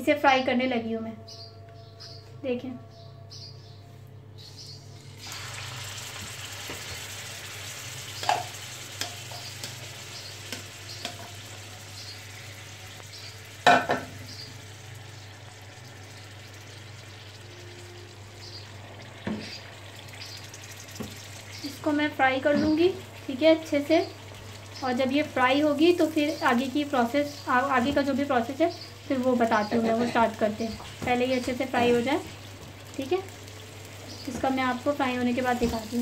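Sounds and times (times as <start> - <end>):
chicken sizzling in hot oil: 5.0 - 36.0
frying pan knocking: 8.2 - 11.6, 13.6 - 14.4, 30.6 - 32.8, 34.2 - 36.0.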